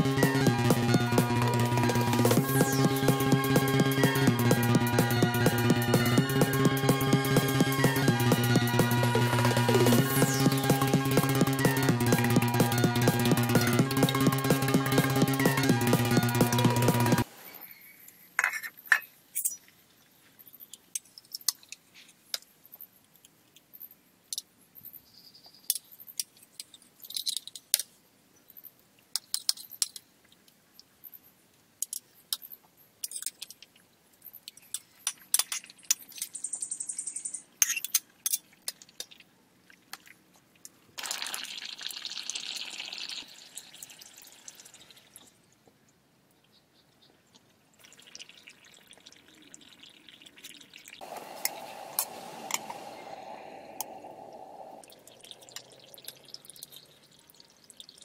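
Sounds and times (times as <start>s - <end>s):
liquid pouring: 41.0s - 45.3s, 47.8s - 58.0s.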